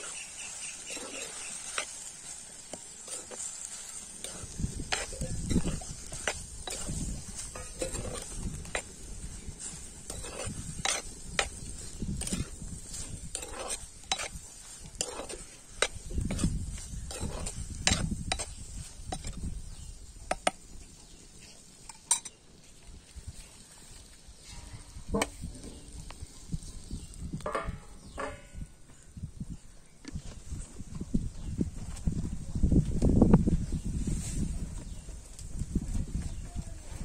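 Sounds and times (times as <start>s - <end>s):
metal scraping and clinking on pan: 0.0s - 19.5s, 21.8s - 22.4s, 27.4s - 28.7s
steel spoon stirring in a pan: 0.0s - 28.4s
steel plate set on pan: 27.4s - 28.6s.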